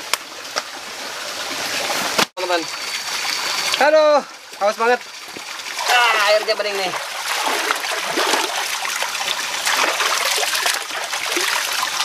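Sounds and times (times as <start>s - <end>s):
stream flowing: 0.0s - 12.0s
water trickling from hands: 3.0s - 12.0s
hands splashing in stream: 5.3s - 12.0s.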